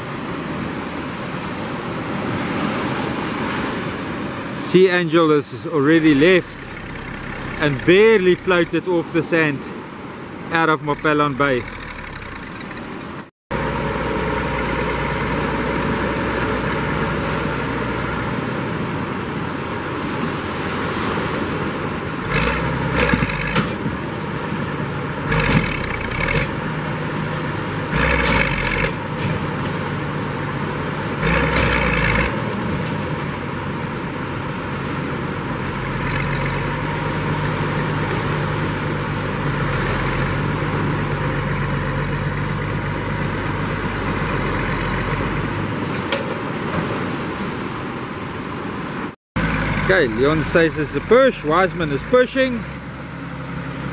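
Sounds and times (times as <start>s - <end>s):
tractor diesel engine running: 5.8s - 9.4s, 10.1s - 19.5s, 21.8s - 45.9s, 49.4s - 53.9s.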